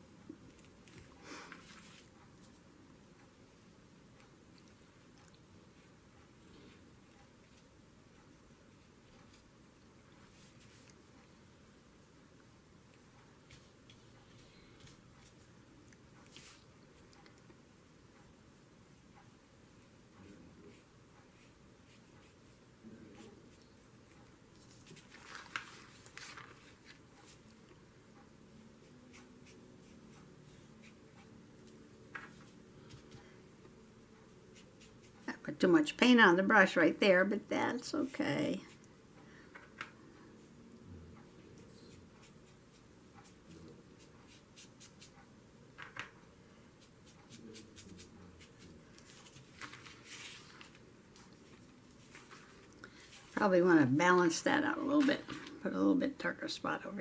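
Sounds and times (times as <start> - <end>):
paintbrush strokes on paper: 0.7 - 2.7, 6.6 - 11.4, 13.1 - 17.2, 20.6 - 27.6, 28.5 - 33.3, 34.1 - 35.5, 41.2 - 45.3, 46.5 - 55.7
brush dabbing paint: 16.2 - 17.1, 34.2 - 35.3, 41.5 - 45.3, 46.7 - 53.7
paper rustle: 24.6 - 27.4, 47.6 - 53.4.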